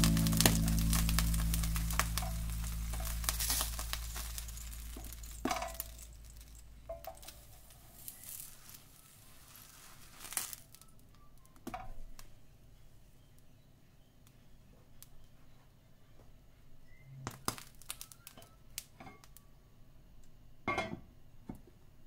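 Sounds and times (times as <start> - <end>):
background music: 0.0 - 5.2.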